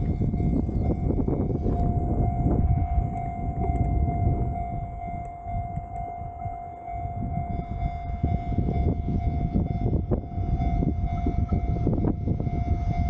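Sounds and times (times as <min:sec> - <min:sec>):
steady high tone: 0:00.0 - 0:13.0
train rumbling past: 0:00.0 - 0:13.0.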